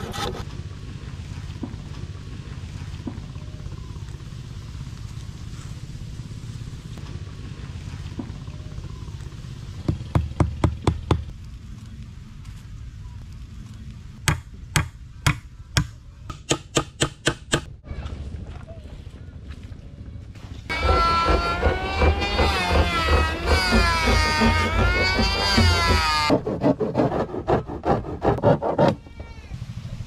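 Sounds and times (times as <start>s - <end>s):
hammer striking wood: 14.3s - 17.7s, 20.7s - 26.4s
low rumble: 17.7s - 28.3s.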